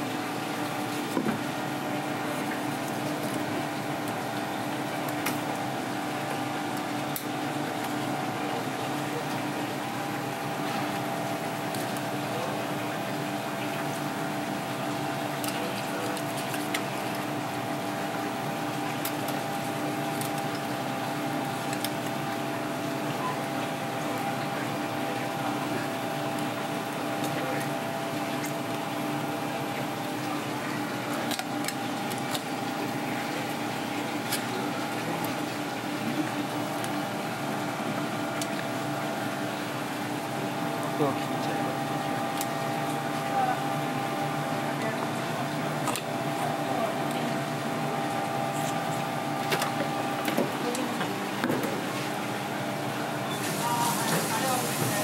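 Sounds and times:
kitchen machinery hum and hiss: 0.0s - 55.0s.

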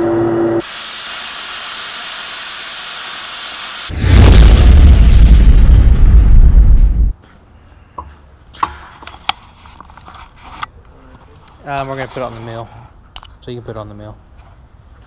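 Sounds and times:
explosion boom: 3.9s - 7.1s.

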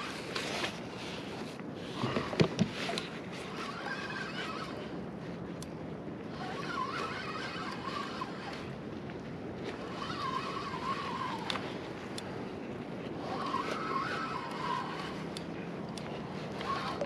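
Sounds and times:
fishing reel whining: 0.0s - 1.1s, 2.0s - 9.0s, 9.6s - 17.0s
steady wind noise: 0.0s - 17.0s
sharp reel clicks: 6.3s - 8.8s, 9.6s - 12.4s, 13.0s - 17.0s.

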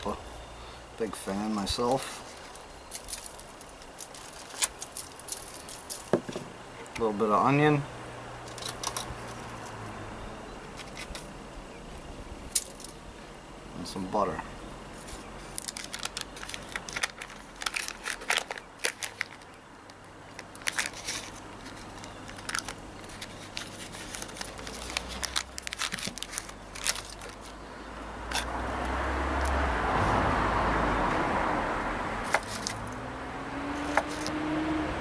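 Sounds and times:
paper wrapper crinkling: 1.8s - 6.2s, 8.4s - 9.4s, 15.0s - 27.6s, 32.2s - 32.9s, 33.8s - 34.3s
vehicle passing: 6.6s - 12.1s, 26.8s - 35.0s.

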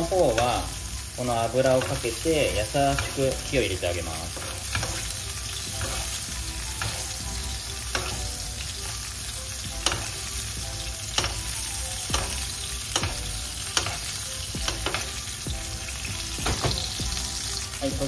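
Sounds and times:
meat sizzling in a frying pan: 0.0s - 18.0s
utensil clicking against pan: 7.8s - 8.4s, 9.7s - 10.4s, 11.0s - 15.3s.

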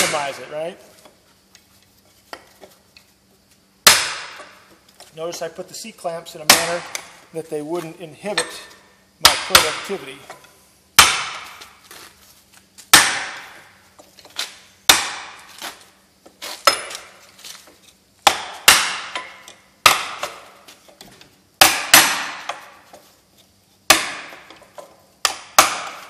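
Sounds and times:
hammer striking metal: 11.0s - 11.6s, 13.0s - 13.6s, 21.6s - 22.7s, 23.9s - 24.4s.

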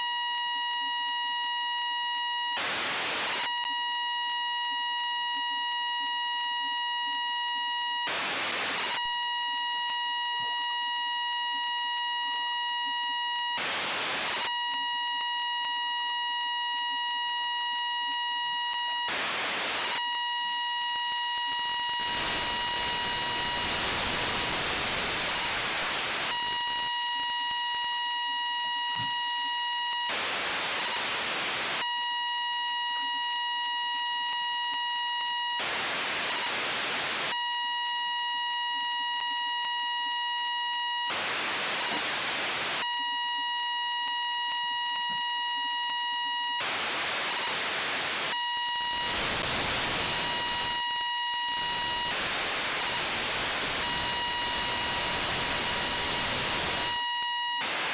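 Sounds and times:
buzzy radio tone: 0.0s - 57.9s
bursts of radio hiss: 21.2s - 26.9s, 46.6s - 57.9s.

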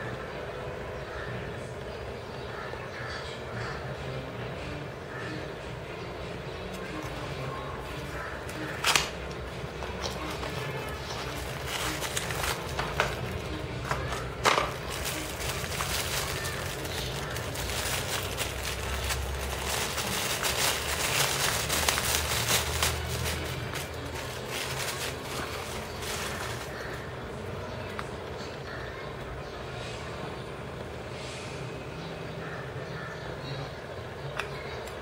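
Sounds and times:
plastic bag crinkling: 7.9s - 27.1s.

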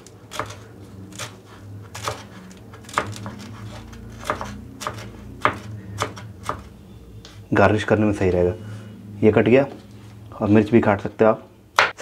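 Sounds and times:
knife chopping on wooden board: 0.0s - 6.7s.

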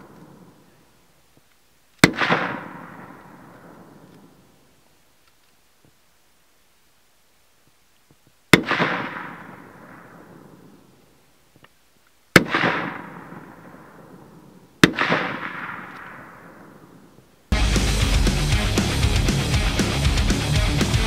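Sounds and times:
rifle shots with echo: 0.0s - 0.7s, 2.0s - 4.4s, 8.5s - 10.9s, 12.3s - 17.2s.

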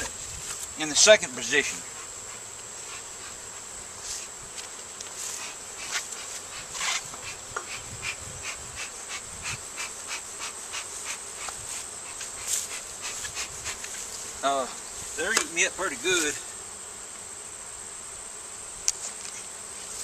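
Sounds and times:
bees buzzing: 0.0s - 20.0s.

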